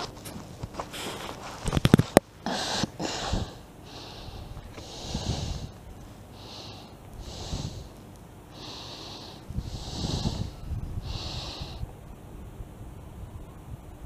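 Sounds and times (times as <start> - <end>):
man breathing hard through nose: 0.8 - 1.6, 2.4 - 12.0.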